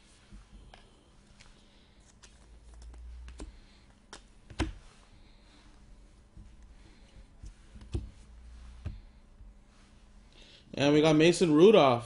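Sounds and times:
cards clicking and tapping: 2.1 - 4.9.

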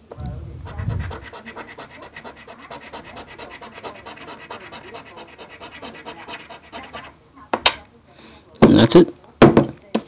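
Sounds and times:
coin scraping scratch-off ticket: 0.7 - 7.1.

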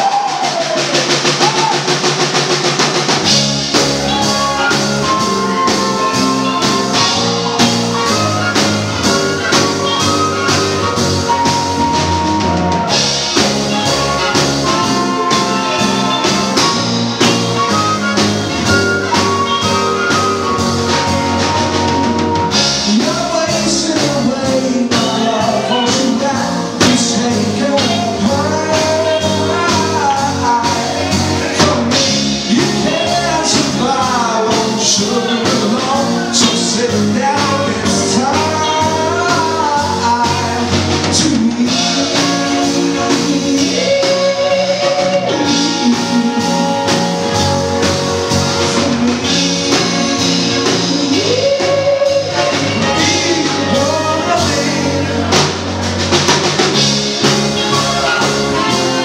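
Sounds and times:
live band playing: 0.0 - 59.0
person singing: 19.0 - 56.1, 56.7 - 59.0.

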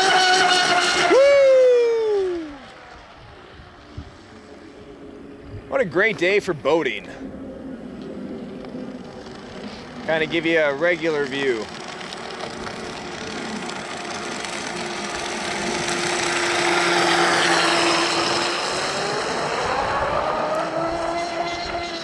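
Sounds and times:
high-pitched electric motor whine: 6.8 - 22.0.

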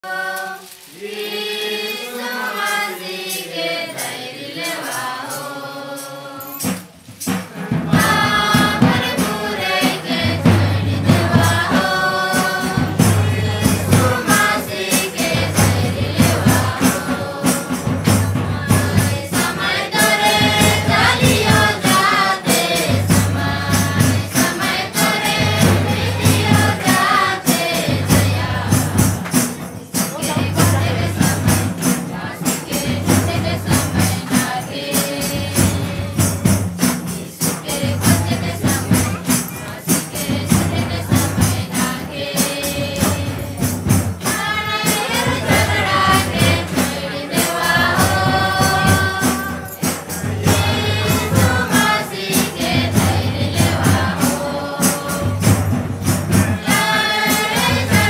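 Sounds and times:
choir singing: 0.0 - 58.0
jingling percussion: 0.0 - 58.0
barrel drum beat: 6.4 - 58.0.

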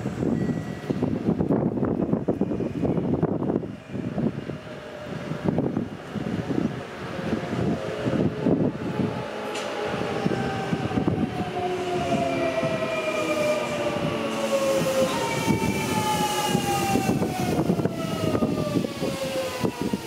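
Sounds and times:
train wheels clattering on rail: 9.4 - 10.4.

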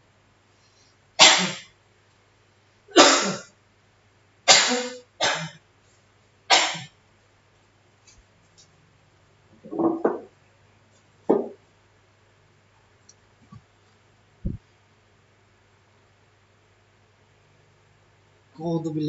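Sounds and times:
person coughing harshly: 1.2 - 1.7, 2.9 - 3.5, 4.5 - 5.6, 6.5 - 6.9.

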